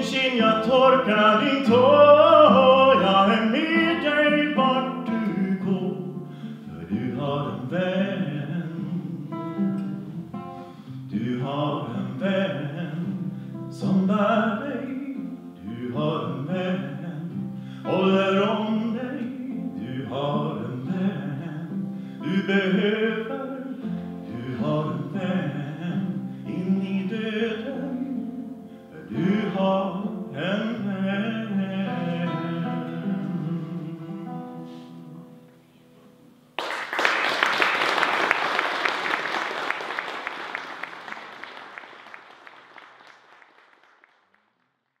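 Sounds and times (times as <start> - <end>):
man singing: 0.0 - 35.5
acoustic guitar: 0.0 - 36.6
audience applause: 36.6 - 44.7.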